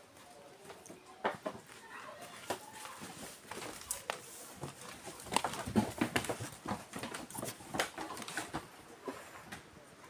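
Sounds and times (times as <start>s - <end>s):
hooves knocking on wooden floor: 0.7s - 8.7s.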